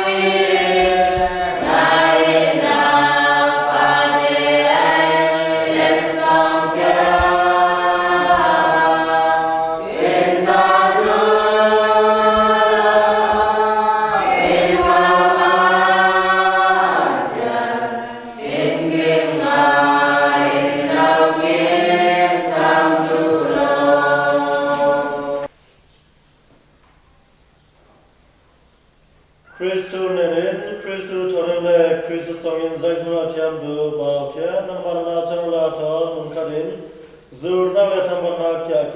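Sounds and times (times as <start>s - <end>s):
choir singing a hymn: 0.0s - 25.5s.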